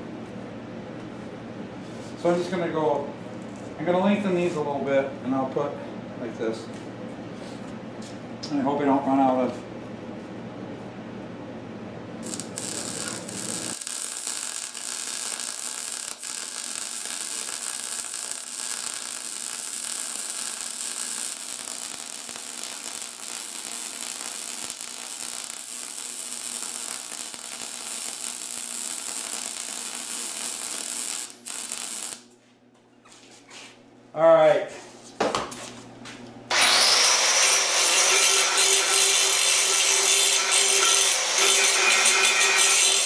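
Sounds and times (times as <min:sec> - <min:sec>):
welder arc crackling hiss: 0:12.2 - 0:32.3, 0:36.5 - 0:43.0.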